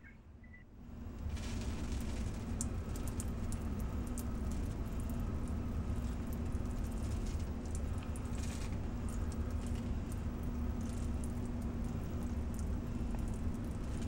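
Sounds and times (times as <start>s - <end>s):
low hum: 0.0s - 5.2s
water droplets ticking: 2.6s - 5.6s, 9.0s - 13.8s.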